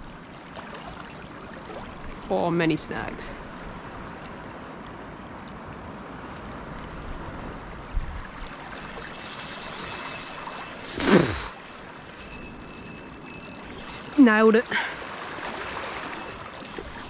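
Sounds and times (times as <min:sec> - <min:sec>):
small waves lapping: 0:00.0 - 0:17.0
fishing reel gears whining: 0:08.3 - 0:17.0.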